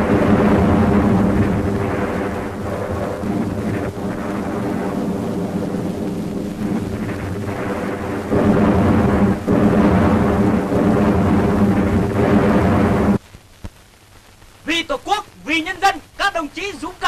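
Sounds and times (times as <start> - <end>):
deep rumble with low tones: 0.0 - 13.2.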